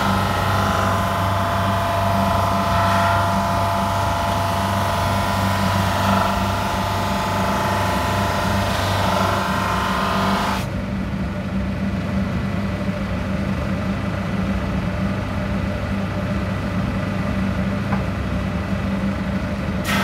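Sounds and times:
drum sander motor hum: 0.0s - 10.7s
dust extractor air rush: 19.8s - 20.0s.

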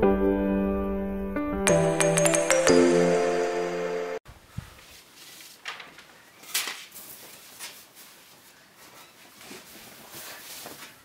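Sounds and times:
fabric rustling: 4.4s - 11.0s.

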